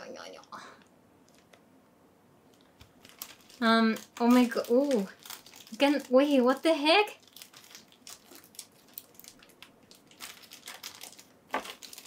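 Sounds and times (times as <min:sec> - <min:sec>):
packaging crinkling and rustling: 0:02.5 - 0:12.0
sharp packaging crackle: 0:02.6 - 0:12.0.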